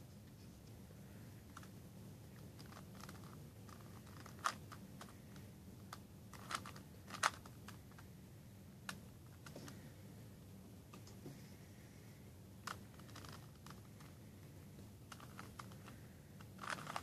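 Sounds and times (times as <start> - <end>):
plastic puzzle cube clicking: 2.6 - 5.1, 5.9 - 7.8, 12.6 - 14.2, 15.1 - 17.0.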